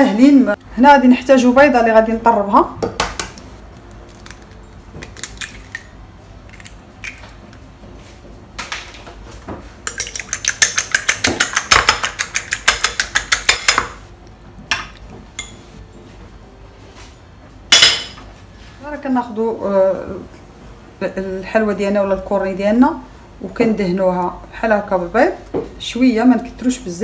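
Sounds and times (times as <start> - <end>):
fork beating egg in bowl: 9.9 - 13.9.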